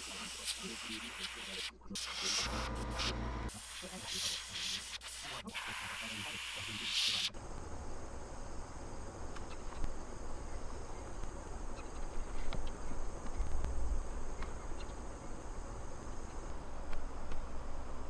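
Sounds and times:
steady low hum: 0:00.0 - 0:04.1
airbrush spray hiss: 0:00.0 - 0:07.4.

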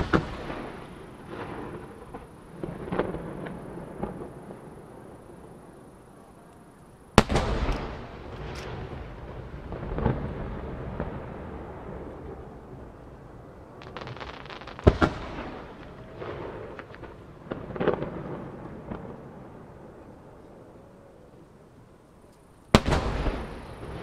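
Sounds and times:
firework crackling: 0:00.0 - 0:06.0, 0:07.1 - 0:19.9, 0:22.7 - 0:24.0
firework shells bursting: 0:13.8 - 0:18.1.

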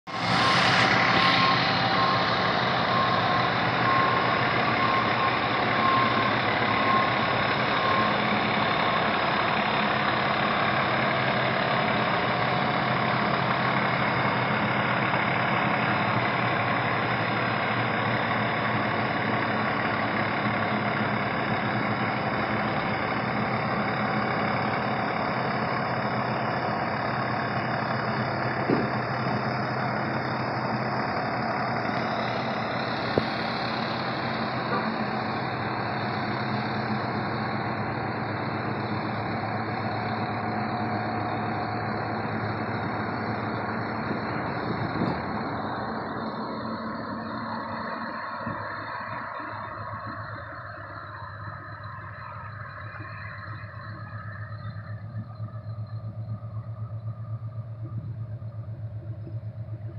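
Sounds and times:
diesel engine idling: 0:00.0 - 0:59.9
short beeps: 0:00.2 - 0:08.9.

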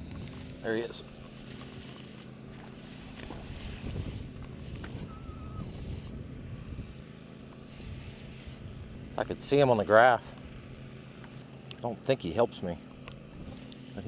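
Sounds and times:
electric trolling motor humming: 0:00.0 - 0:14.0
wind on microphone: 0:03.2 - 0:07.0.

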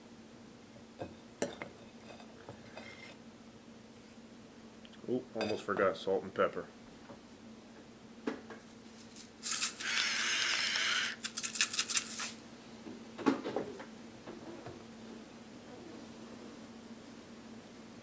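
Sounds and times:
salt and pepper shaking: 0:09.4 - 0:12.4.

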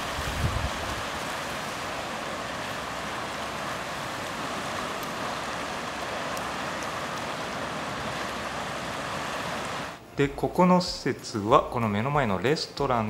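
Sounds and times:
sea surf breaking: 0:00.0 - 0:10.0.

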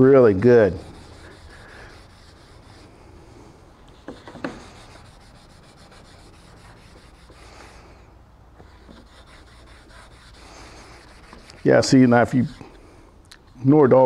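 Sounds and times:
pad scrubbing wax on wood: 0:00.7 - 0:03.0, 0:04.0 - 0:07.6, 0:08.6 - 0:12.7.

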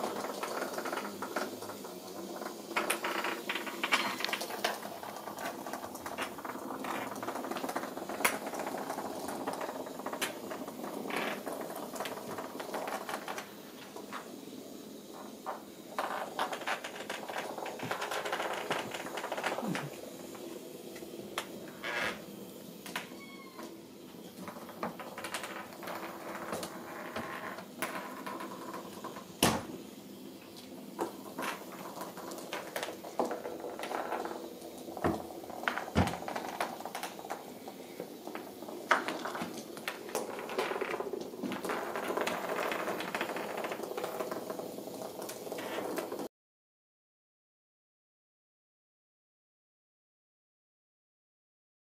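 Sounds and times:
paws and toys tapping on tile: 0:00.0 - 0:05.2
kitten meowing: 0:23.0 - 0:23.7.

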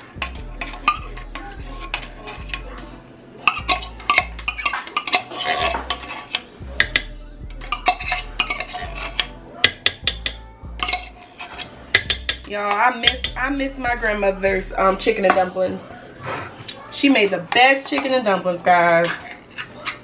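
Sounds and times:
metal spoon scraping tin can: 0:00.2 - 0:02.7, 0:03.4 - 0:13.3, 0:17.5 - 0:20.0.

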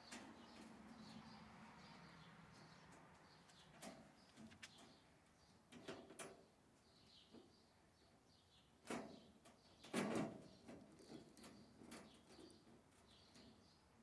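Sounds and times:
metallic clanks against wire cage: 0:05.7 - 0:06.4, 0:08.8 - 0:13.6.

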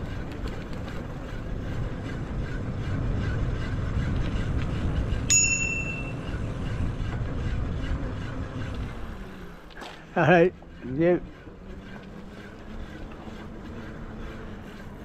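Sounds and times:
bicycle tyres rumbling on tarmac: 0:00.0 - 0:15.0
bicycle bell ring: 0:05.3 - 0:06.3.

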